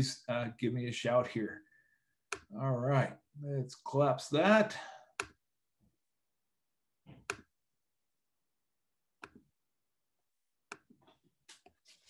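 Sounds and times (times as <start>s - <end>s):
computer mouse clicks: 9.2s - 9.4s.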